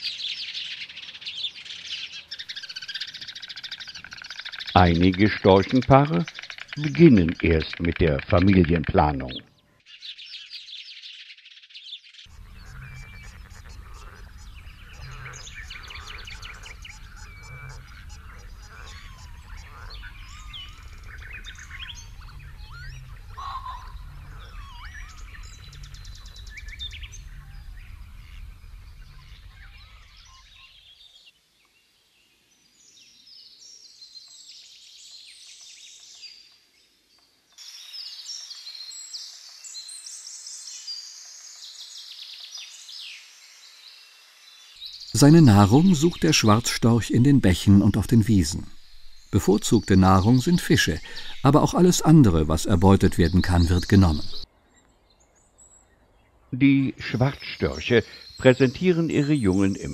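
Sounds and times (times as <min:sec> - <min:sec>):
birds calling and singing: 0:00.0 - 0:59.9
low rumble: 0:12.4 - 0:29.9.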